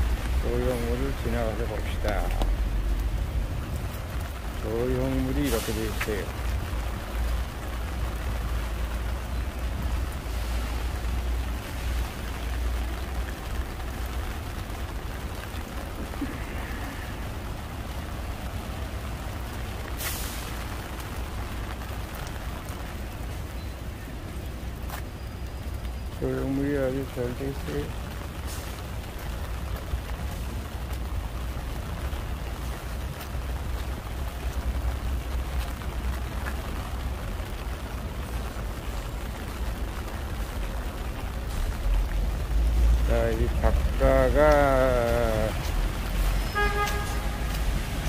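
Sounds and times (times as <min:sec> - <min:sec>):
city traffic: 0:00.0 - 0:48.0
rain: 0:00.0 - 0:48.0
short sharp hiss: 0:20.0 - 0:20.5.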